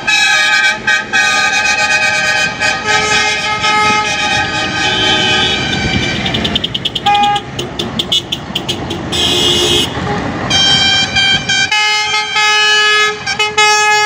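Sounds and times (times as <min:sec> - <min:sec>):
passing traffic: 0:00.0 - 0:14.0
truck horns tooting and blasting: 0:00.0 - 0:14.0.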